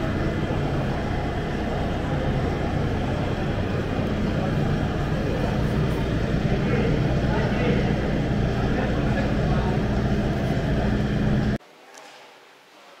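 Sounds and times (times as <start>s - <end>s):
exhibition hall din: 0.0s - 13.0s.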